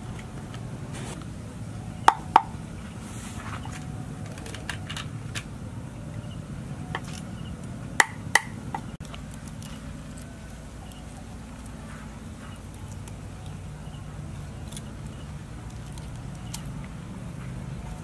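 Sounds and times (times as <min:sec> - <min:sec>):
cleaver chopping on wooden board: 0:02.1 - 0:02.5, 0:08.0 - 0:08.9.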